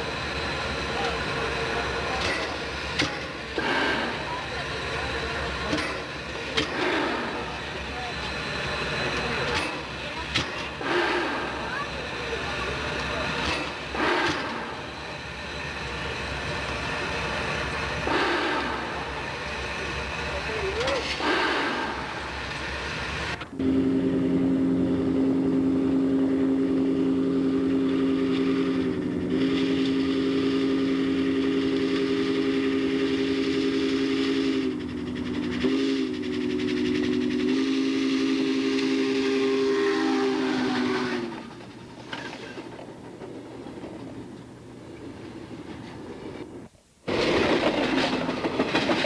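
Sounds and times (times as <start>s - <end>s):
train running noise: 0.0s - 49.0s
steam locomotive whistle: 13.0s - 15.0s, 18.0s - 19.2s, 20.9s - 22.4s, 23.6s - 41.6s.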